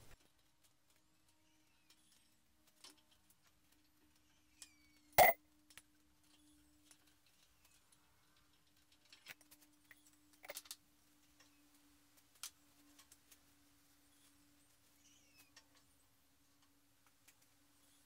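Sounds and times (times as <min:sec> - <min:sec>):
faint steady hum: 0:05.2 - 0:06.9.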